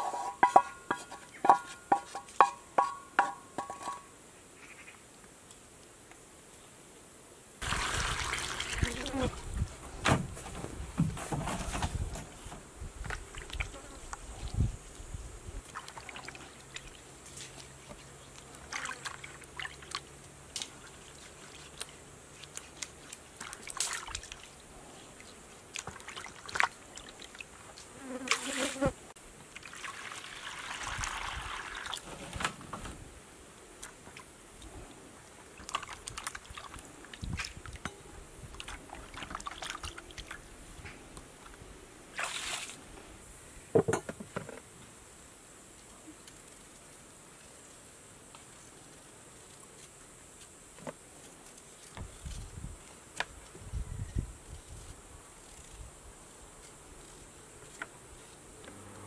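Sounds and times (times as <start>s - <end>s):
water pouring into basin: 7.6s - 9.1s, 29.6s - 32.0s
water splashing and sloshing: 7.6s - 11.4s, 15.6s - 27.8s, 29.5s - 32.7s, 35.4s - 40.5s, 41.4s - 42.9s
plastic basin set down on wood: 43.7s - 44.6s.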